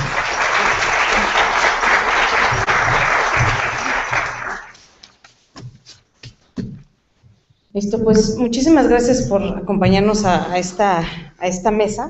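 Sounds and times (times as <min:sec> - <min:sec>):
audience applauding: 0:00.0 - 0:05.1.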